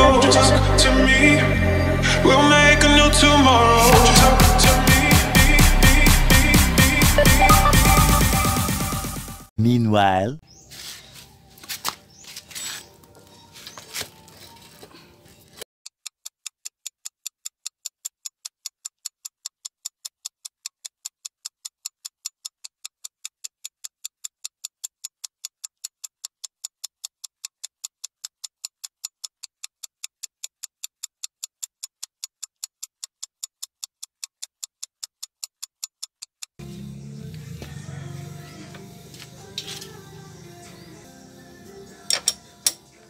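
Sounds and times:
clock ticking: 7.1 - 8.6, 16.0 - 36.6.

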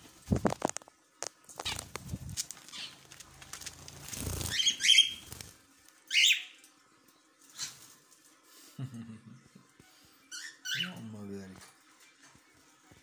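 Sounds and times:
bird wings flapping: 1.5 - 5.6
high bird chirps: 4.4 - 5.3, 6.1 - 6.6, 10.3 - 11.0.

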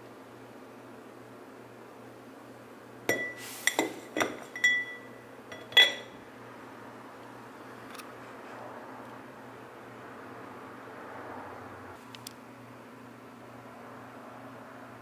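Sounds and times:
cup clinking against wall: 3.1 - 6.2.

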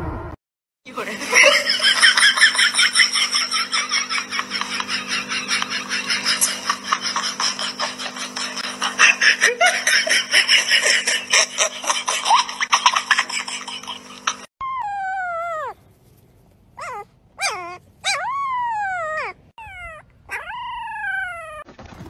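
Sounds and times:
people laughing: 1.0 - 14.5.

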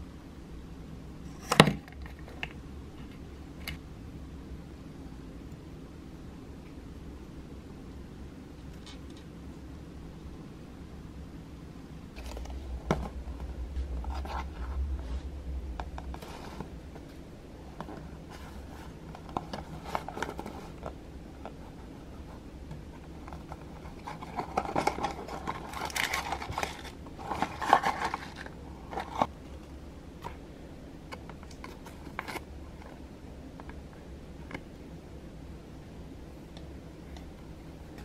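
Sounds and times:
rustling and tearing: 23.0 - 29.3.

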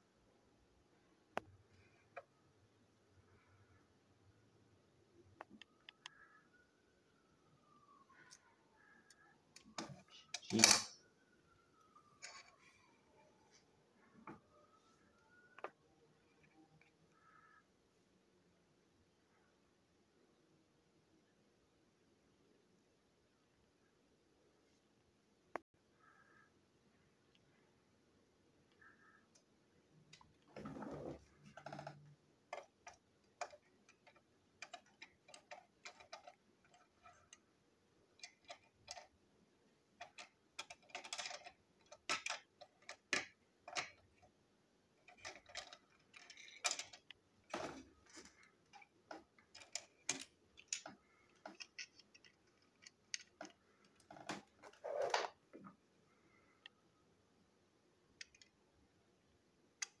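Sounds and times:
plastic toy parts clicking: 31.5 - 37.4, 38.2 - 39.2, 40.0 - 44.3, 45.0 - 47.8, 48.6 - 54.5, 58.2 - 58.6.

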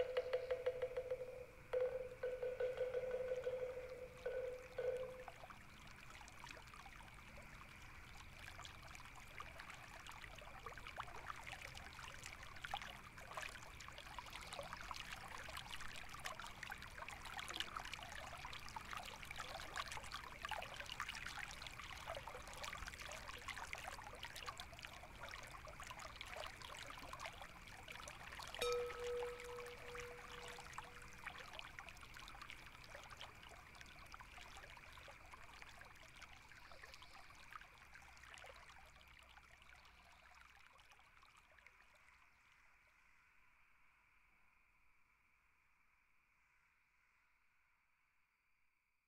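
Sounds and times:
faint steady high tone: 0.0 - 5.6, 28.6 - 31.3
trickling water: 0.0 - 43.0
rain patter: 1.8 - 38.6.

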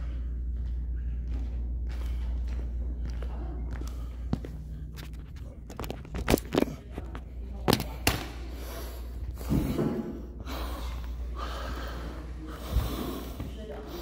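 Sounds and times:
man breathing hard: 8.5 - 14.0.

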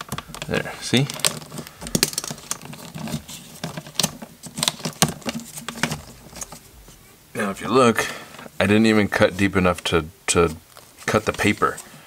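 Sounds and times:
plastic cable jacket peeling: 0.0 - 6.7.

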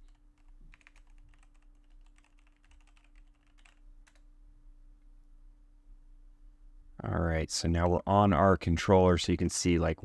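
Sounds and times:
faint keyboard typing: 0.0 - 4.3.

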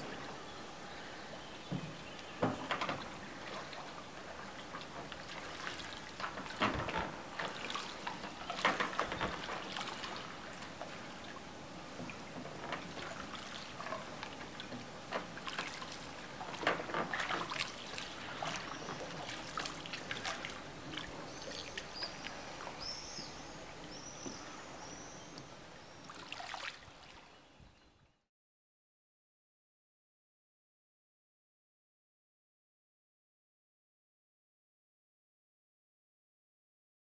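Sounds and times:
oar splashing through water: 0.0 - 27.4.

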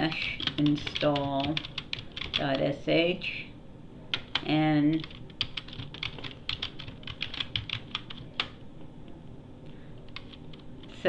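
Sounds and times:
keyboard typing: 0.2 - 2.6, 4.1 - 8.6, 10.1 - 10.9.

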